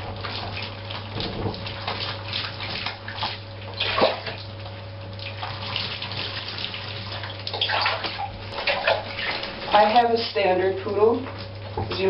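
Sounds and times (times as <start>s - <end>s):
water splashing into bathtub: 0.0s - 12.0s.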